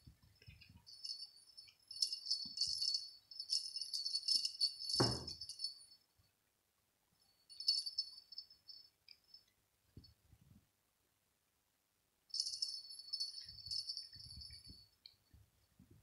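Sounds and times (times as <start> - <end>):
cat toy bell jingling: 0.3 - 6.0, 7.5 - 9.5, 12.3 - 15.0
low thump: 5.0 - 5.4.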